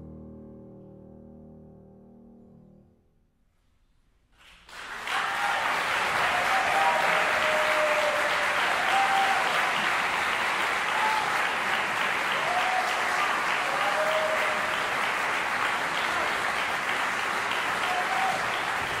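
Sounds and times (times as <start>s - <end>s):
audience applauding: 4.4s - 19.0s.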